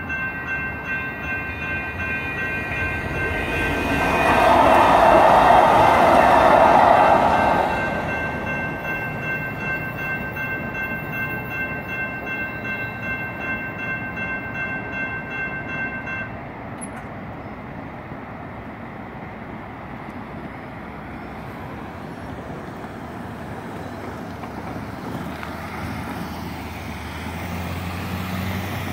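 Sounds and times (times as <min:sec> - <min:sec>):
crossing warning bell ringing: 0:00.0 - 0:17.2
light rail train passing: 0:00.0 - 0:28.9.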